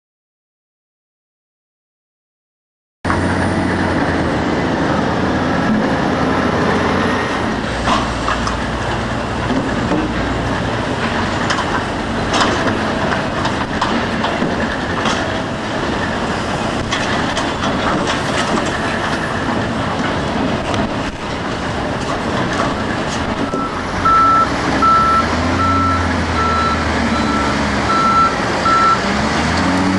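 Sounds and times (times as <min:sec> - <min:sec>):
heavy machinery rumble: 0:03.1 - 0:29.9
logs clanking on steel conveyor: 0:07.4 - 0:29.9.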